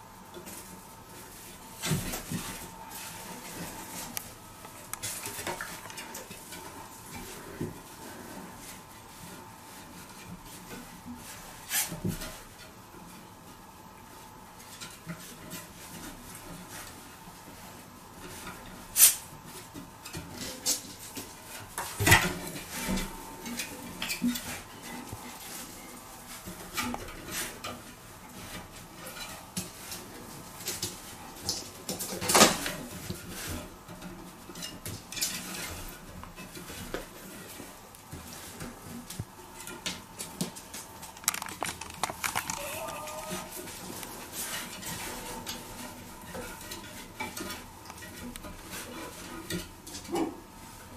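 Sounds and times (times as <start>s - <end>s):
hard objects clinking and knocking: 41.1s - 43.5s.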